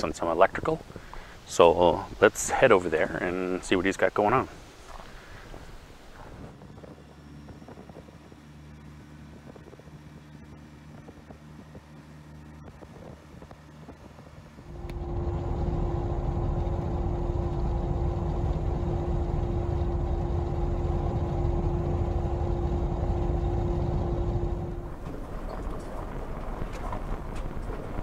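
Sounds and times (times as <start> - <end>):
car driving road rumble: 14.6 - 28.0.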